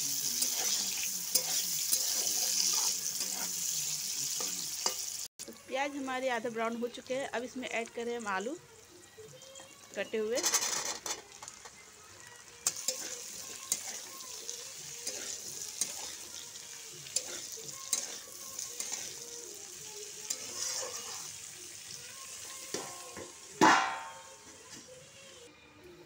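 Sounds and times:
potatoes sizzling in oil: 0.0 - 25.4
ringing metal clank: 23.6 - 24.4.

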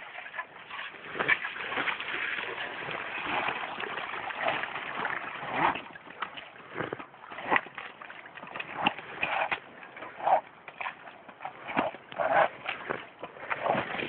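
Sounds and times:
bike tyres splashing through mud: 0.0 - 6.3.

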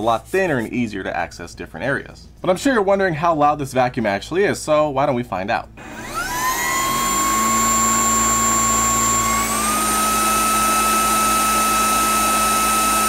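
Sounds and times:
vacuum cleaner motor whining: 5.8 - 13.0.

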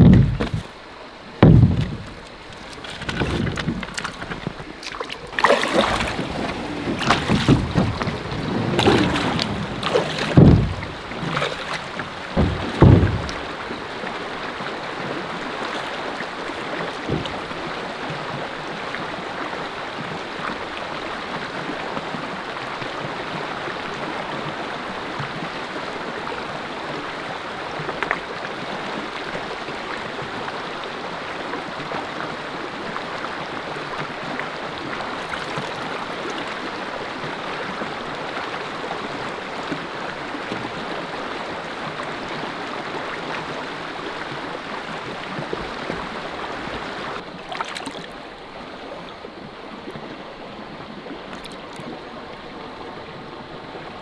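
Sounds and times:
soft knocks: 0.0 - 0.7, 1.4 - 4.6, 6.9 - 13.6, 17.0 - 17.6
rocky river flowing: 0.0 - 54.0.

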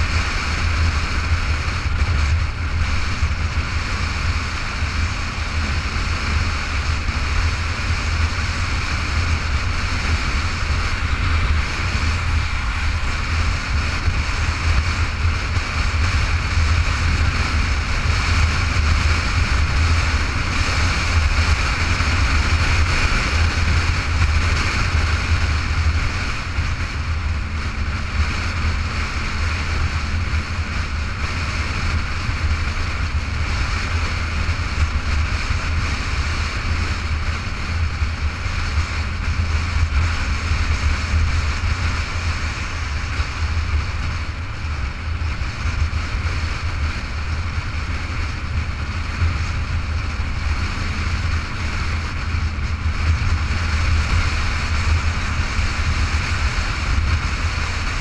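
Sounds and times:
motorcycle road noise: 0.0 - 58.0
wind rumble on microphone: 0.0 - 58.0.

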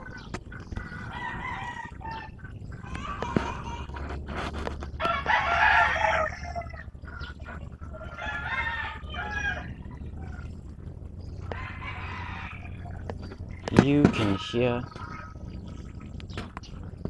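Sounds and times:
rooster crowing: 1.0 - 4.0, 5.0 - 6.8, 8.0 - 9.9, 11.4 - 13.0.

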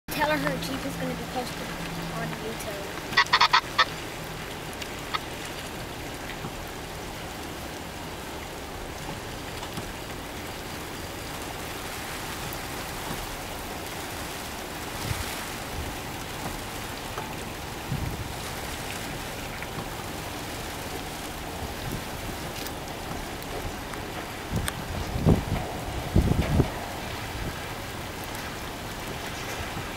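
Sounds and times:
faint car engine: 0.1 - 7.3
steady outdoor hiss: 0.1 - 29.9
dull low thumps: 15.0 - 29.9.

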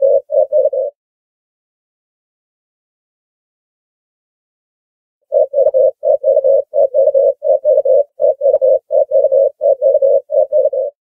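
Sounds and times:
dove cooing: 0.0 - 1.0, 5.3 - 11.0.

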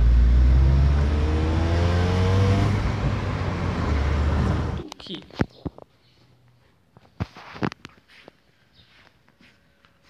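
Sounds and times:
car engine accelerating: 0.0 - 4.8
road rumble inside car: 0.0 - 4.8.

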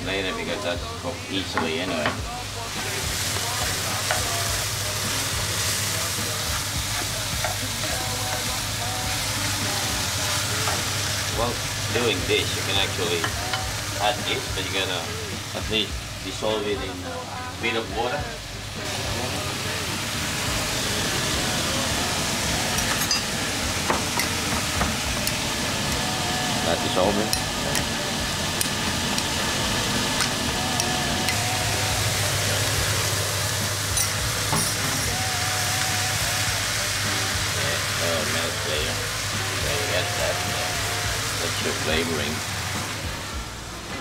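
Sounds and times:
food sizzling in a frying pan: 0.0 - 44.0
steady hiss: 0.0 - 44.0
spoon clinking in mug: 22.8 - 23.3, 33.9 - 34.9.

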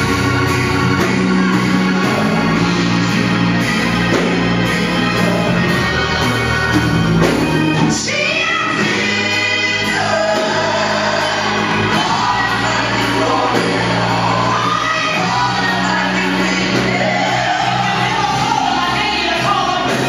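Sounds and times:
bass backing: 0.0 - 20.0
choir singing: 0.0 - 20.0
lead voice singing: 0.0 - 20.0.

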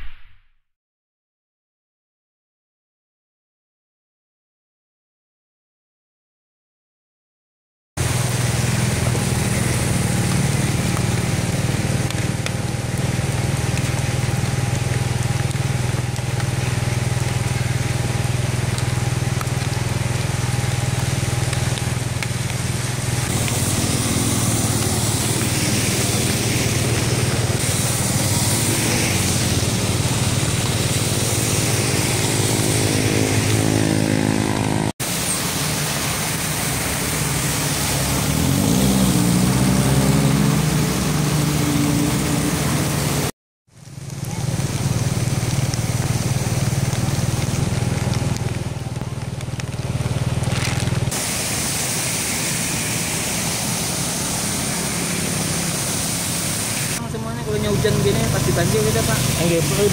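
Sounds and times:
cars driving through water: 8.0 - 59.9
heavy rain hissing: 8.0 - 59.9
splashing water: 8.0 - 59.9
motorcycle engines passing: 8.1 - 34.9, 37.2 - 43.3, 43.9 - 51.2.

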